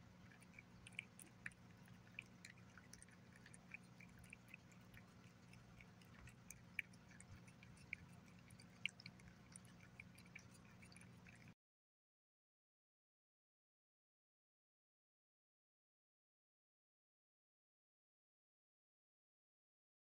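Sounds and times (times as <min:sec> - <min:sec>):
cat chewing and smacking: 0:00.0 - 0:11.6
faint low hum: 0:00.0 - 0:11.6.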